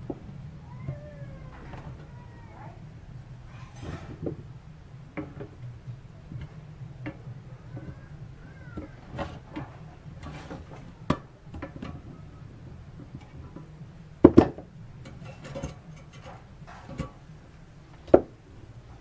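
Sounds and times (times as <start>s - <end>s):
metal tools knocking and clicking: 14.3s - 17.3s.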